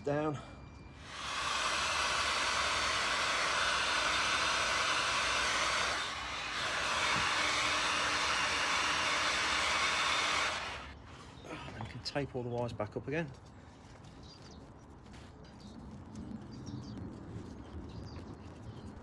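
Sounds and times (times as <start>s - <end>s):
heat gun blowing: 1.0s - 11.0s.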